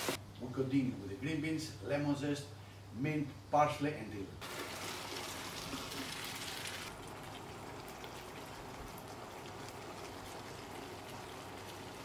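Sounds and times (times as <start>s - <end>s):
sauce sizzling and bubbling in pan: 4.4s - 12.0s.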